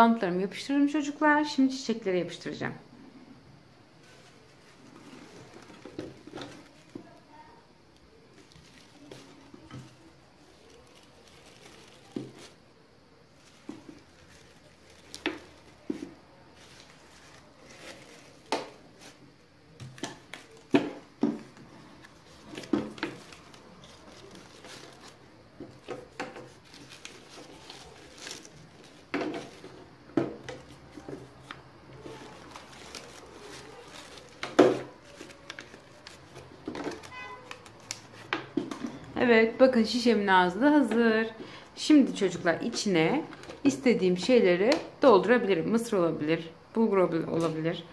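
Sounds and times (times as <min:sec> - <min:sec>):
plastic bottle handled: 0:04.0 - 0:07.2, 0:08.3 - 0:12.6, 0:13.3 - 0:39.1
crepe paper rustling: 0:04.0 - 0:07.5, 0:08.1 - 0:12.6, 0:13.3 - 0:39.1.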